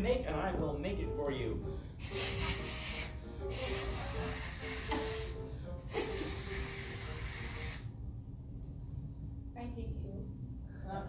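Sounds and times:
man blowing hissing breaths: 1.8 - 8.0.

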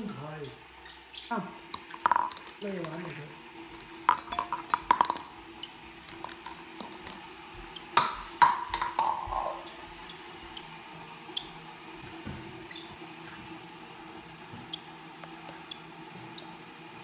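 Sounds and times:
plastic cup tapping on countertop: 1.8 - 2.5, 4.1 - 5.3, 8.0 - 9.6.

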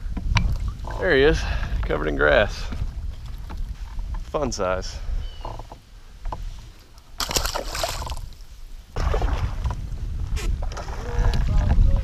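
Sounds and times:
wind rumbling on microphone: 0.0 - 12.0
water sloshing and splashing: 6.4 - 9.8.

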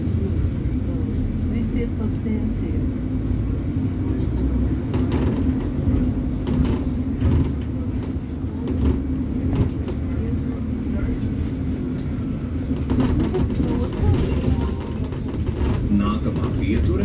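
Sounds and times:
bus engine and road drone: 0.0 - 17.0
knocks and rattles: 12.8 - 17.0.

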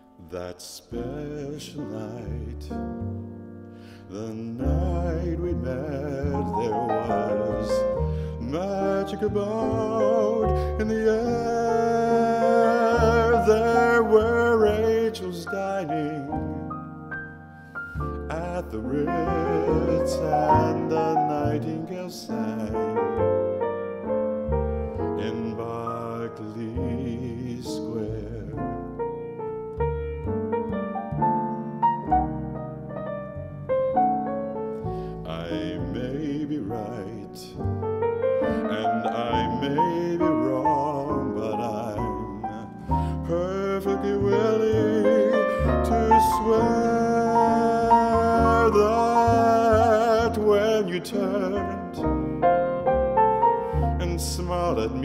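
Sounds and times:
jazz piano: 0.0 - 55.0
man singing: 0.2 - 2.9, 4.0 - 16.8, 18.0 - 23.4, 24.9 - 29.0, 35.2 - 37.7, 38.4 - 52.1, 53.7 - 55.0
walking double bass: 0.8 - 55.0.

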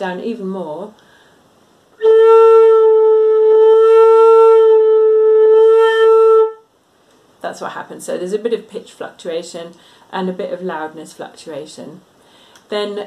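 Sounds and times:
flute holding a note with vibrato: 2.0 - 6.7.

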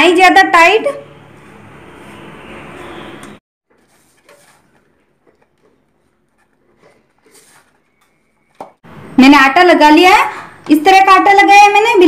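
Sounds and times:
hands kneading dough: 3.7 - 8.8.

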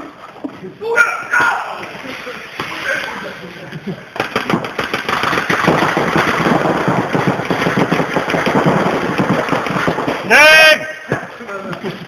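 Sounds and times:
paintball markers firing rapidly: 4.1 - 11.8.

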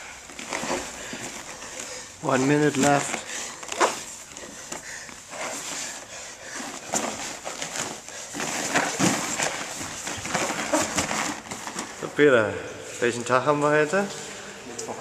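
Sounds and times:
hard breathing: 0.0 - 12.0
bodies scuffing on mats: 0.2 - 12.0.

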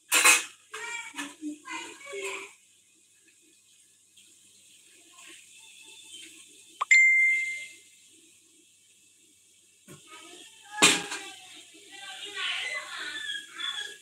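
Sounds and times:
bright ding: 6.8 - 7.7.

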